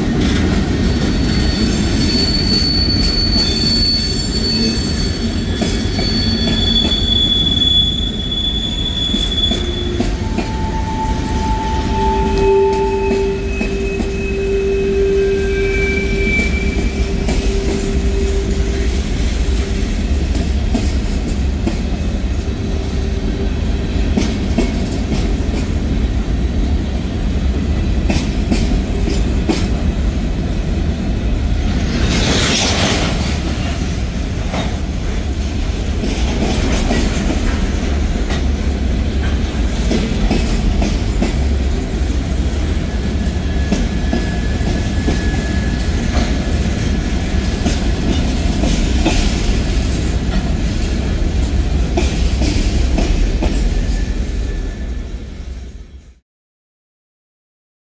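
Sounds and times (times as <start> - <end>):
freight train rumbling past: 0.0 - 56.2
high screech: 1.1 - 18.9.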